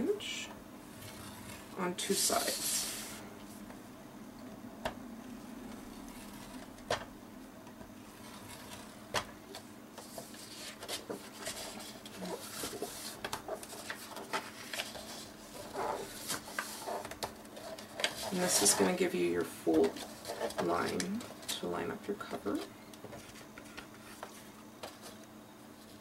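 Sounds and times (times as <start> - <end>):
paper rustling: 8.1 - 21.7, 22.3 - 26.0.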